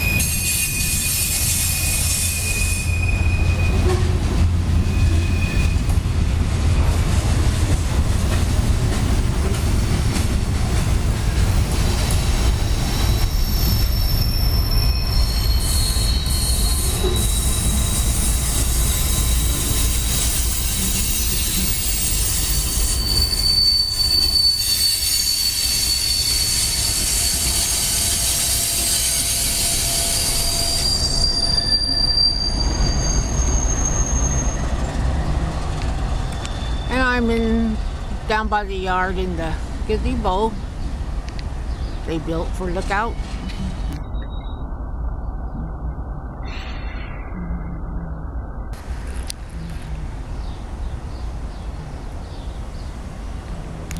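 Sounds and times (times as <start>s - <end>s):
high-pitched wheel squeal: 0.0s - 4.1s, 4.8s - 6.0s, 12.6s - 34.9s, 36.1s - 37.0s
train wheels rumbling on rail: 0.0s - 44.2s.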